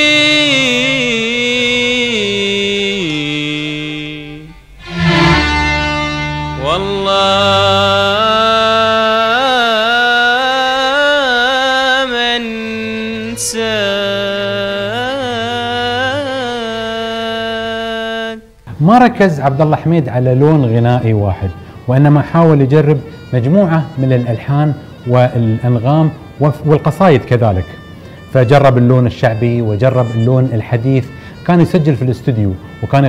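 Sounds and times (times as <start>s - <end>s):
man singing ornamented notes: 0.0s - 33.0s
instrumental accompaniment: 3.0s - 10.3s, 18.6s - 33.0s.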